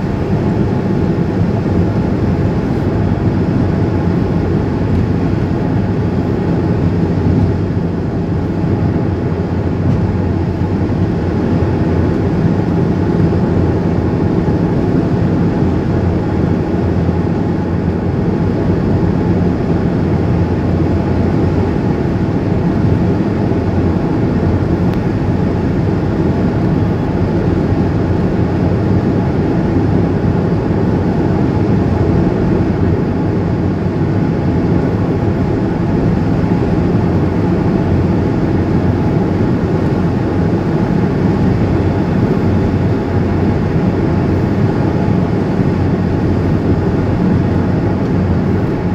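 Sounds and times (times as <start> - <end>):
car road noise and engine hum: 0.0 - 48.9.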